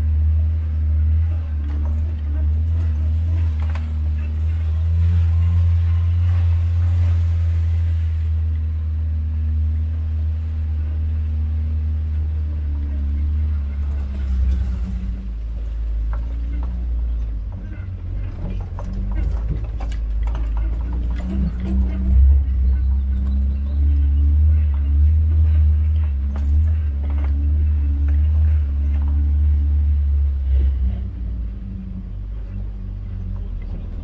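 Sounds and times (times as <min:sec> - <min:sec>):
vehicle engine running: 0:00.0 - 0:34.0
knocks and rattles: 0:13.0 - 0:31.5.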